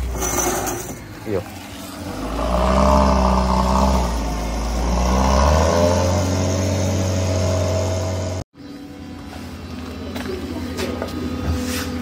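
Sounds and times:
vehicle engine revving: 1.6 - 8.5.

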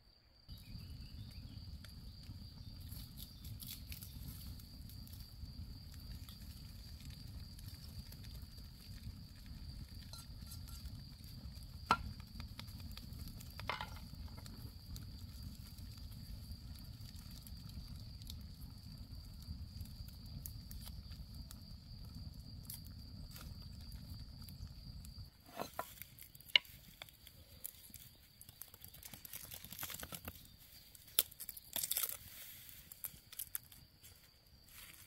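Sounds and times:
campfire crackling: 0.5 - 35.0
garlic skins rustling and tearing: 25.5 - 33.8.

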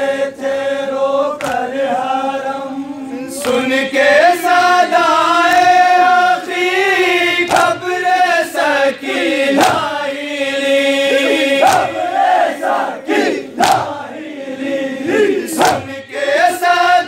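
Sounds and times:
men chanting a lament: 0.0 - 17.0
chest slaps: 1.4 - 1.7, 7.5 - 7.8, 9.6 - 10.0, 11.5 - 12.0, 13.6 - 14.0, 15.6 - 16.0.

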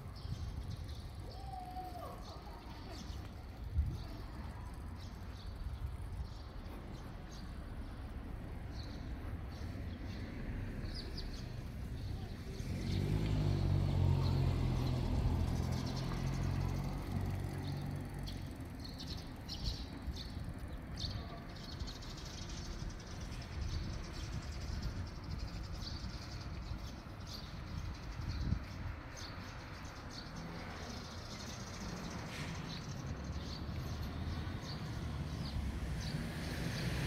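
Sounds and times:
low traffic hum: 0.0 - 37.0
small birds chirping: 0.0 - 37.0
passing vehicle engine: 10.0 - 19.2, 30.4 - 37.0.

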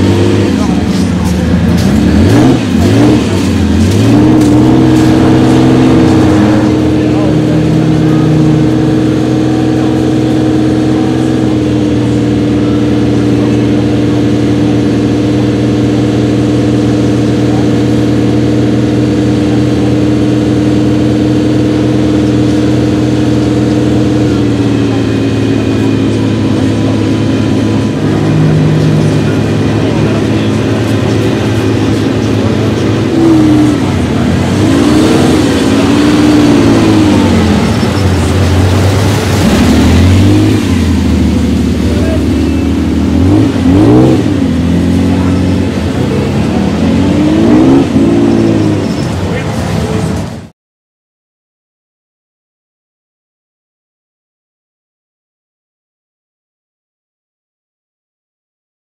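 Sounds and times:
car engine idling and revving: 0.0 - 50.5.

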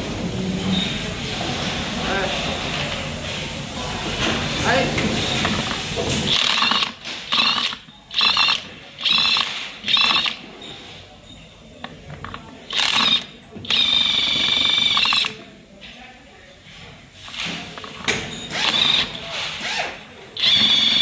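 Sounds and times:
power wrench whirring: 5.4 - 10.4, 12.7 - 15.4, 17.8 - 21.0.

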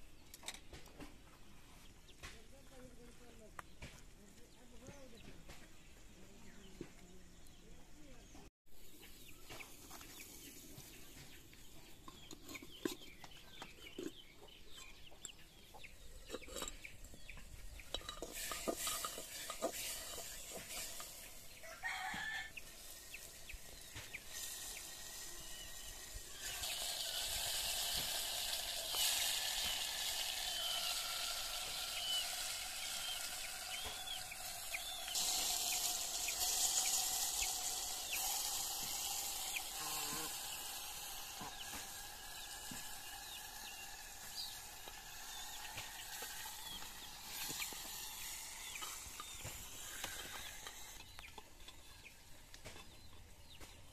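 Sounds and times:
chickens clucking: 9.2 - 53.9
clicks and knocks of clay pots: 16.1 - 21.1
steady hiss: 17.4 - 52.8
rooster crowing: 21.6 - 22.6.

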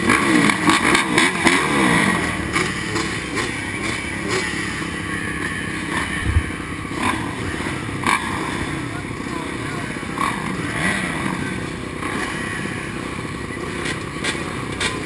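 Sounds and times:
motocross bike engines revving: 0.0 - 15.0.

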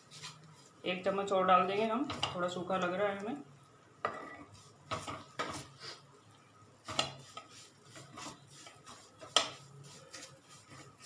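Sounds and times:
spatula scraping a pan: 0.0 - 1.2, 4.0 - 6.0, 6.8 - 11.0.

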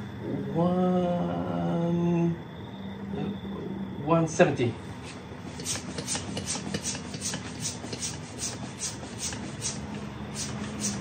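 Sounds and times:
hand pump strokes: 5.5 - 11.0.

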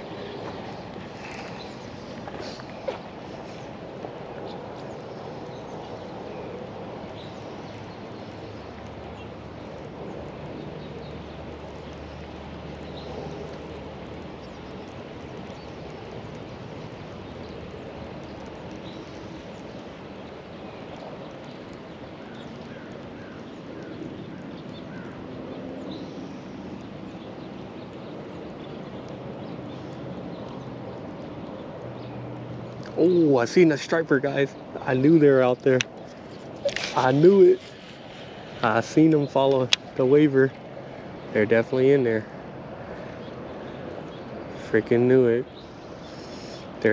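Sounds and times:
steady outdoor hiss: 0.0 - 46.9
faint bird chirps: 45.4 - 46.9.

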